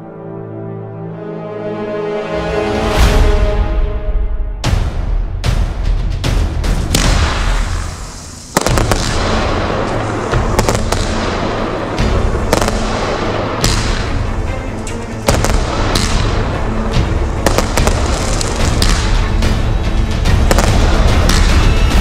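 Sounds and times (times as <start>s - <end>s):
firework crackles and pops: 6.8s - 14.3s, 15.2s - 16.5s, 17.4s - 19.4s, 20.4s - 22.0s
firework fountain hissing: 6.9s - 14.1s, 17.4s - 19.2s
music with deep beat: 10.2s - 22.0s.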